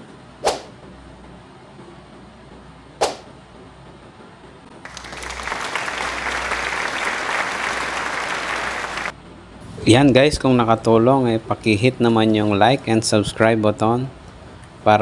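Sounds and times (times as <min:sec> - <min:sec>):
applause: 0:04.8 - 0:09.2.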